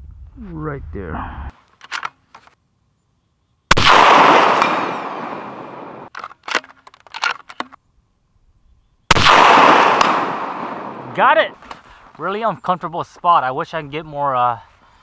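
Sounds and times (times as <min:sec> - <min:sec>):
metallic clicks of rifle bolt: 0:01.7 - 0:02.6, 0:06.1 - 0:07.8
rifle shots echoing: 0:03.7 - 0:06.1, 0:09.1 - 0:11.2.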